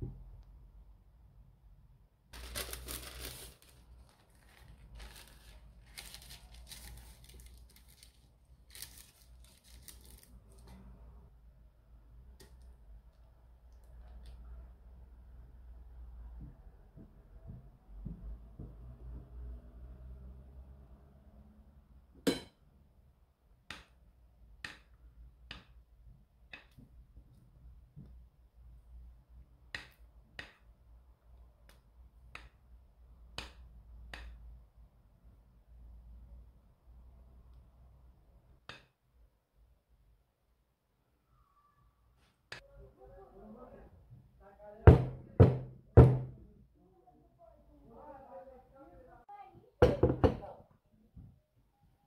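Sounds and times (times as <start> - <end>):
baking paper crinkling: 2.4 - 10.7.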